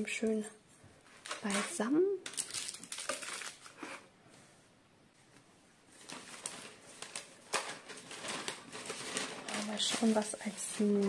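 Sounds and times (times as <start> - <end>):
plastic packaging rustling: 1.0 - 4.0, 5.9 - 11.0.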